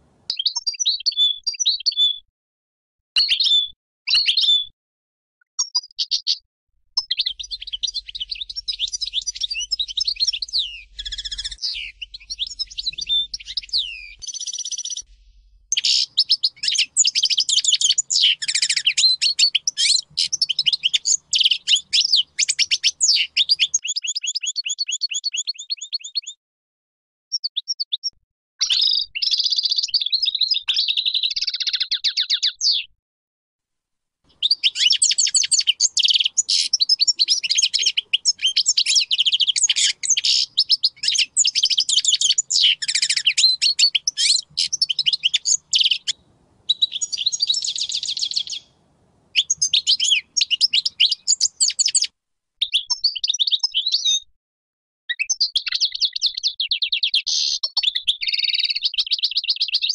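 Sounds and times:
goldfinch twittering song: 0:07.0 - 0:15.1, 0:15.7 - 0:26.3, 0:34.3 - 0:48.7, 0:49.3 - 0:54.0.

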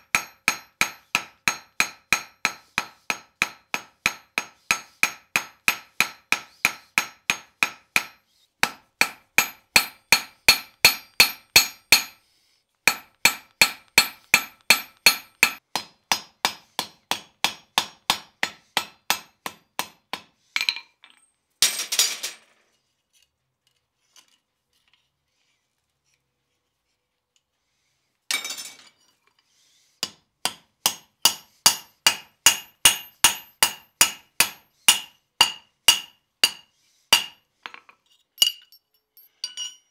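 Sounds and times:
hammer striking iron on anvil: 0:00.0 - 0:12.2, 0:12.9 - 0:20.3, 0:30.0 - 0:37.4.

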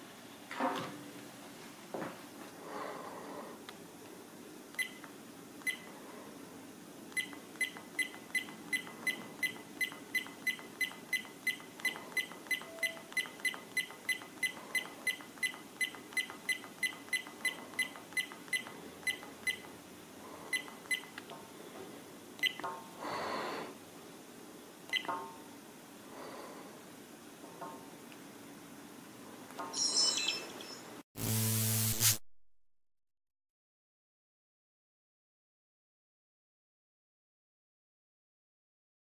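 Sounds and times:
camera button beeps: 0:04.8 - 0:05.0, 0:07.2 - 0:19.7, 0:20.6 - 0:21.2, 0:22.4 - 0:22.7, 0:24.9 - 0:25.2.

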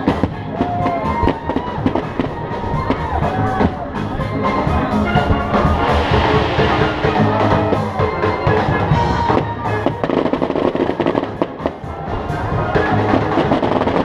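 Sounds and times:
fireworks bursting and crackling: 0:00.0 - 0:11.8, 0:13.2 - 0:14.0
music with drums: 0:00.0 - 0:14.0.

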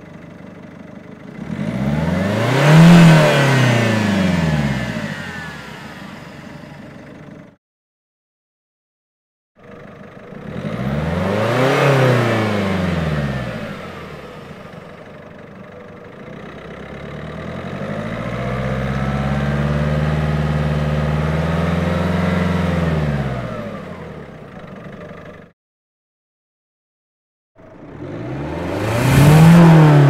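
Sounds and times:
car engine revving: 0:01.3 - 0:07.4, 0:10.1 - 0:25.0, 0:27.6 - 0:30.0.

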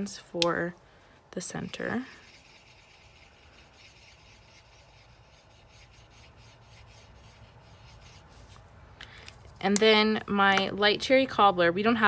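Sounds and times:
marker tip scratching on card: 0:01.7 - 0:08.6.

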